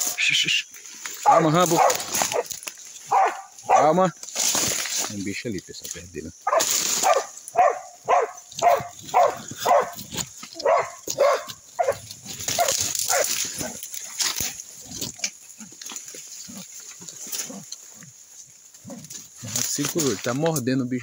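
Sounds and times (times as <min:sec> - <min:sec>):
dog barking: 0:01.2 - 0:02.5, 0:03.1 - 0:04.0, 0:06.4 - 0:13.8.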